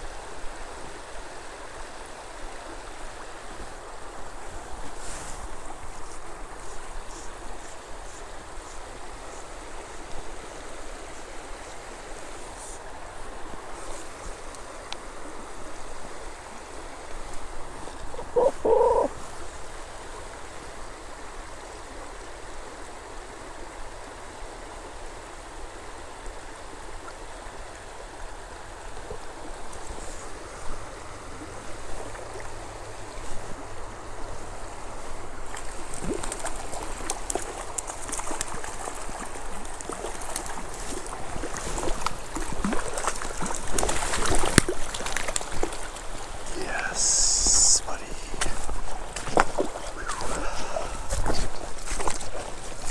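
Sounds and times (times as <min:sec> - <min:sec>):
water rushing and gurgling: 0:00.0 - 0:52.9
water splashing: 0:35.4 - 0:52.9.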